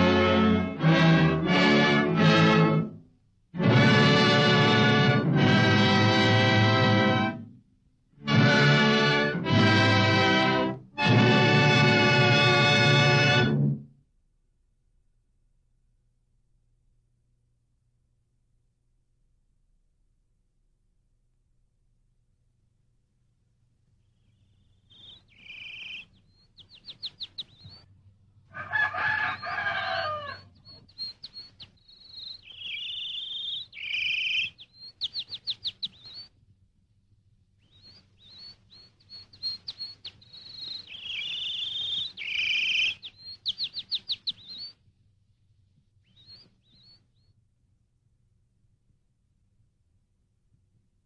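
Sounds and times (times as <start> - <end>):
small bird singing a trill: 24.0 - 27.9, 29.2 - 36.4, 37.6 - 44.8, 46.0 - 47.4
bird chirps: 24.0 - 28.0, 29.2 - 36.4, 37.6 - 44.9, 46.0 - 47.4
rooster crowing: 28.5 - 30.6.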